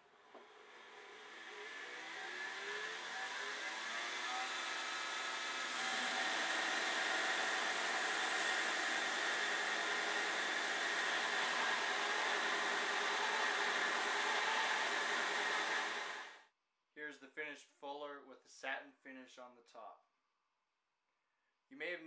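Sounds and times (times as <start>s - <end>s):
belt grinder grinding steel: 0.6s - 16.4s.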